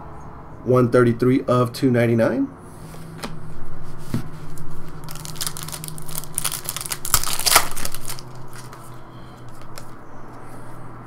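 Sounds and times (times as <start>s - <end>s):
cards rustling: 4.0s - 10.0s
wrapper crinkling and tearing: 4.5s - 10.0s.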